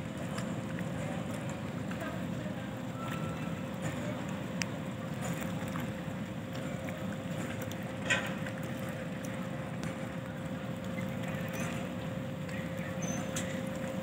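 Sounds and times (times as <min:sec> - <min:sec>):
ship machinery humming: 0:00.0 - 0:14.0.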